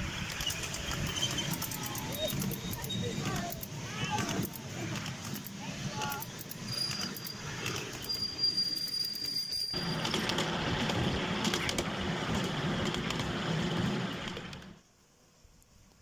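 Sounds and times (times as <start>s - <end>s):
train wheels rumbling and rattling: 0.0s - 14.8s
high wheel squeal: 0.3s - 3.4s, 6.5s - 10.0s.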